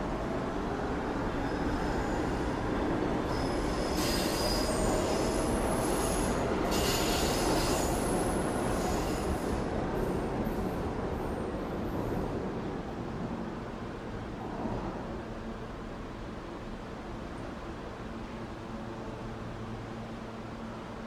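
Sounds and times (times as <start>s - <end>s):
low train rumble: 0.0s - 21.0s
train wheels squealing on rails: 1.2s - 12.3s.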